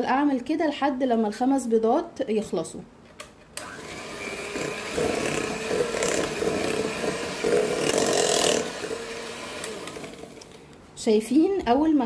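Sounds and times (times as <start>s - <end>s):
electric hand mixer running: 3.6s - 10.6s.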